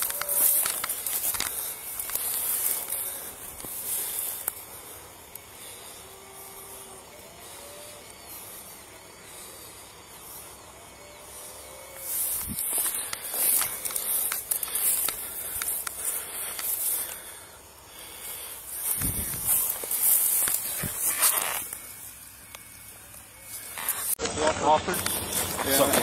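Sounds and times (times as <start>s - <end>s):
faint night ambience hiss: 0.0s - 26.0s.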